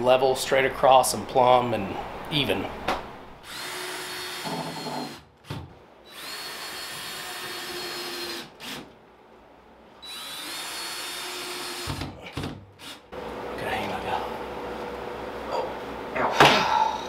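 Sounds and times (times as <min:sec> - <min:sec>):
cordless drill driving screws: 0:03.4 - 0:05.2, 0:06.1 - 0:08.8, 0:10.0 - 0:12.0.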